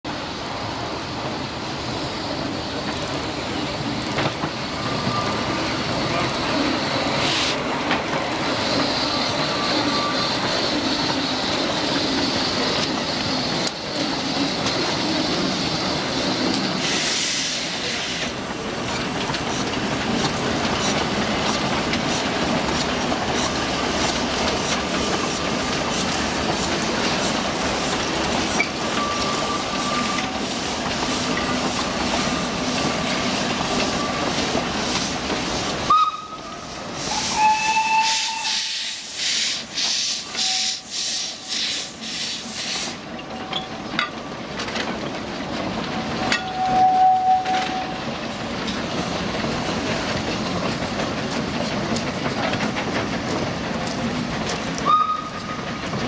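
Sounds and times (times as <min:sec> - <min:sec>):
steam hissing: 0:00.2 - 0:43.2
steam locomotive exhaust beats: 0:02.8 - 0:43.2.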